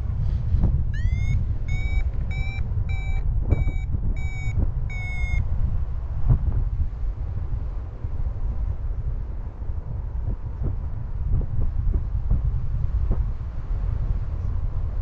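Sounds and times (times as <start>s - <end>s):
wind on microphone: 0.0s - 15.0s
variometer short beeps: 0.9s - 5.5s.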